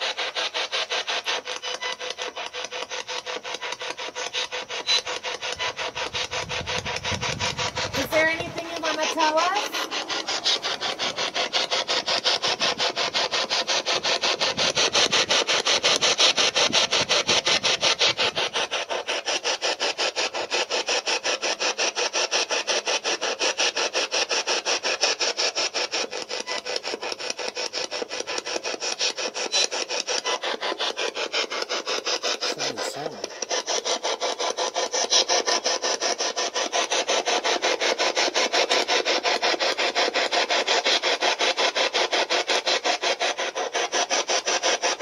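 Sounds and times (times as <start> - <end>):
radio static bursts chopping: 4.9 - 18.5.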